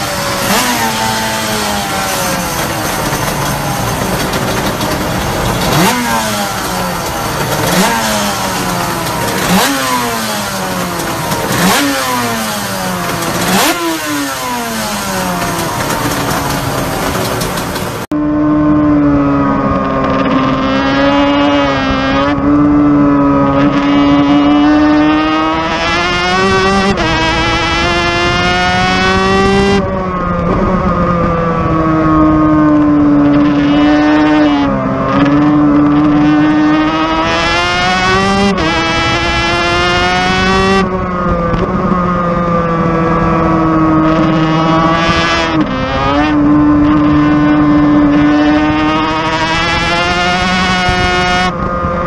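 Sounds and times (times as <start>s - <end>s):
racing engine revving: 0.0s - 52.0s.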